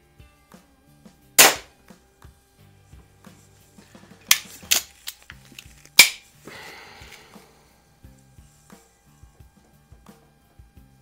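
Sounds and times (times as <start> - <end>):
air pistol shot: 1.4 - 1.7, 6.0 - 6.2.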